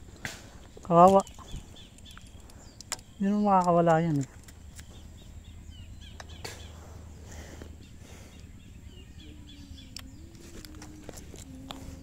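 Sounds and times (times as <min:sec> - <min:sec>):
low background hum: 0:00.0 - 0:12.0
small birds chirping: 0:00.0 - 0:12.0.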